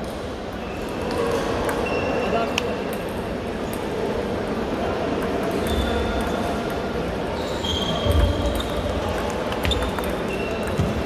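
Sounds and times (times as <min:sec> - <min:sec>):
large hall background noise: 0:00.0 - 0:11.0
table tennis balls clicking: 0:08.0 - 0:11.0.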